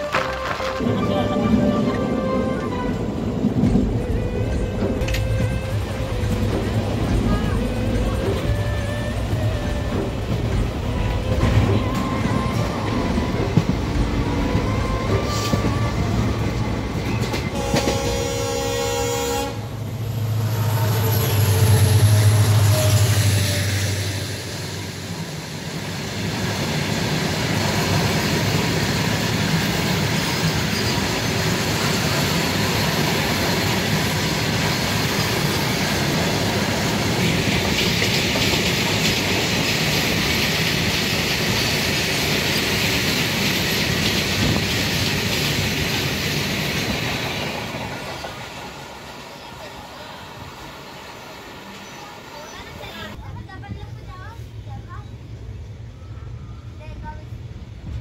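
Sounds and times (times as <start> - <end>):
train horn: 0.0 - 24.6
train wheels rumbling on rails: 0.0 - 58.0.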